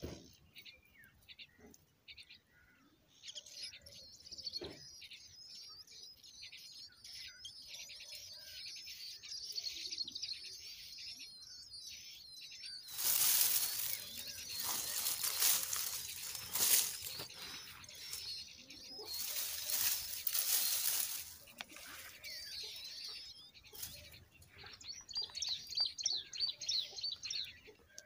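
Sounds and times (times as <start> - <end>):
nestlings begging calls: 6.1 - 27.6
loud rustling: 12.9 - 18.3, 19.1 - 21.9.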